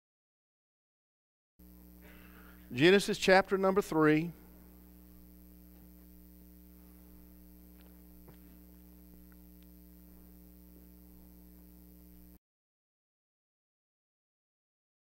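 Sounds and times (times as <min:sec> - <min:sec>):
faint mains hum: 0:01.6 - 0:12.4
faint ticks: 0:07.7 - 0:12.2.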